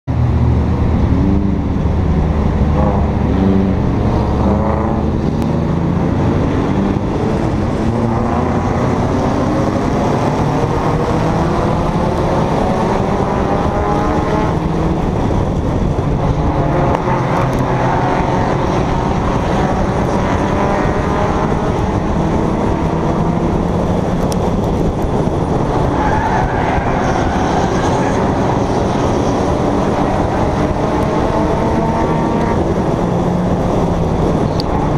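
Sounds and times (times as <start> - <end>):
stock car engines revving: 0.0 - 34.9.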